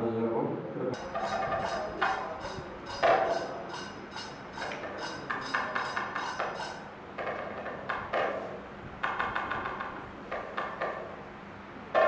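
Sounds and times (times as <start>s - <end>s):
ringing percussion strokes: 1.0s - 6.9s.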